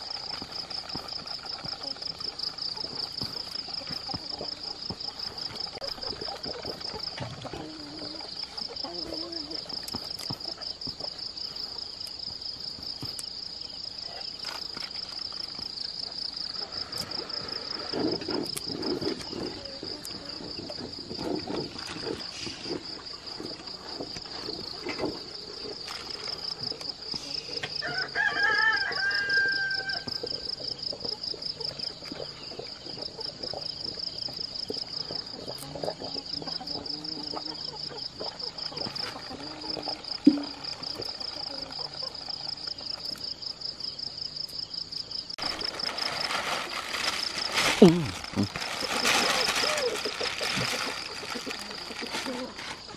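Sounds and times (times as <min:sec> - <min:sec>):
insects chirring: 0:00.0 - 0:52.9
rooster crowing: 0:27.8 - 0:30.2.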